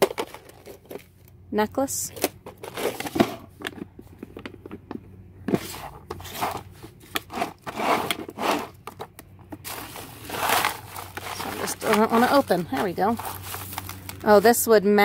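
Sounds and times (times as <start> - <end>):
plastic drawer scraping and clicking: 5.5 - 13.6
plastic bags crinkling: 9.6 - 14.6.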